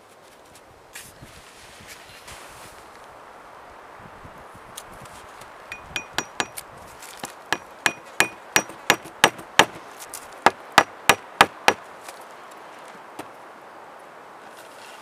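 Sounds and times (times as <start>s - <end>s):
axe head tapping wooden peg: 5.7s - 6.6s, 7.5s - 9.8s.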